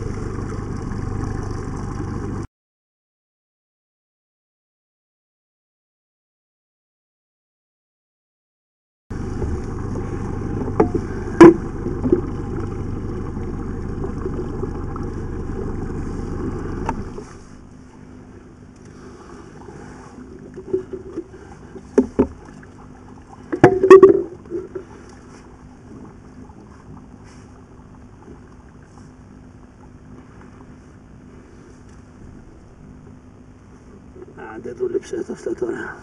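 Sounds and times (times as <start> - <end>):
low rumbling noise: 0.0 - 2.5, 9.1 - 34.8.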